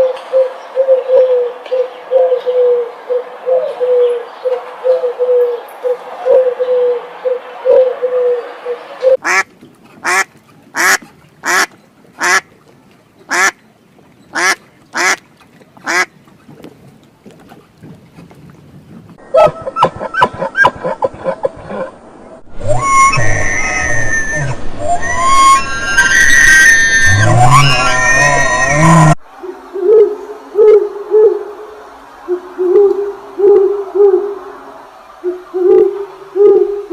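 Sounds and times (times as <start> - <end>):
bird calling: 13.2 - 16.3
pigeon cooing: 28.4 - 31.6, 35.3 - 36.9.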